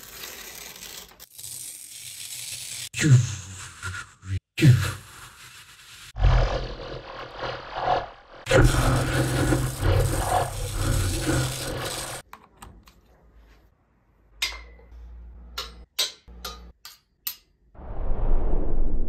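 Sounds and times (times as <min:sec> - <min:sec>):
electric energy shield roar: 0:06.2 - 0:12.2.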